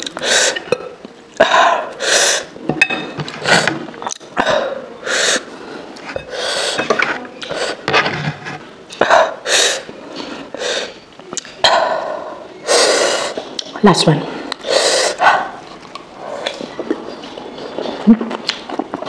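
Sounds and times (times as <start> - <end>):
wet chewing and slurping: 15.4 - 19.0.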